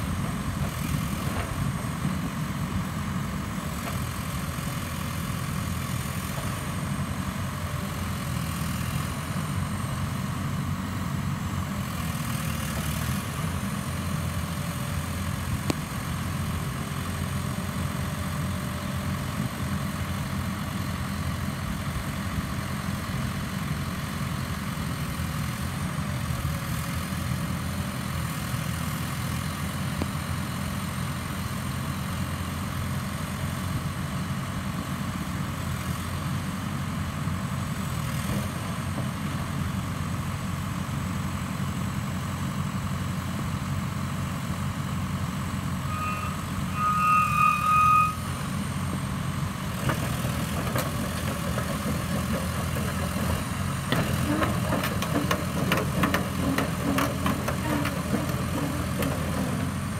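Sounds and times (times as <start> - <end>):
excavator diesel engine running: 0.0 - 59.9
warning beeper: 45.9 - 48.4.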